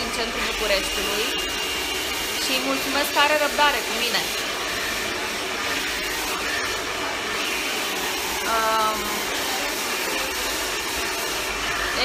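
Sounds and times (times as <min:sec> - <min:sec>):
hair dryer blowing air: 0:00.0 - 0:12.0.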